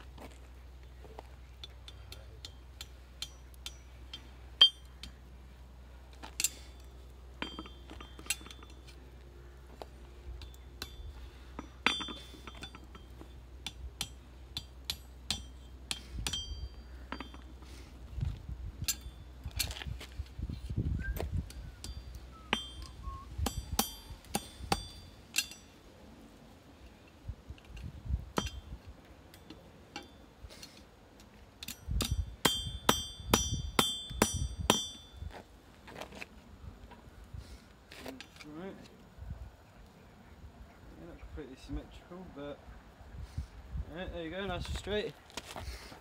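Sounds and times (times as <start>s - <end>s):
hammer striking steel on anvil: 1.6s - 5.2s, 7.4s - 8.9s, 10.4s - 17.6s, 21.8s - 25.7s, 28.4s - 28.7s, 31.6s - 35.2s
anvil ringing: 1.8s - 5.2s, 6.4s - 8.9s, 10.4s - 17.5s, 21.8s - 25.7s, 31.6s - 35.2s.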